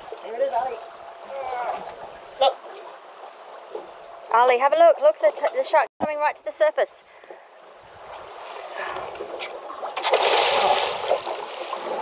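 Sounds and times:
water splashing and churning: 0:07.5 - 0:12.0.

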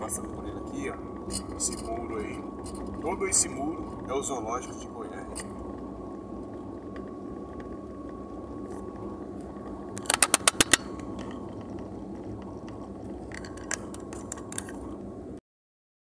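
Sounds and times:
car cabin engine and road hum: 0:00.0 - 0:15.4
sharp clicks: 0:10.0 - 0:10.9.

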